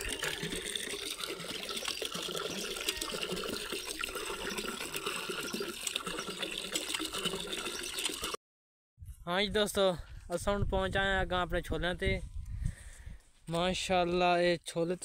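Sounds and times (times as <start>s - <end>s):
water running and splashing: 0.0s - 8.4s.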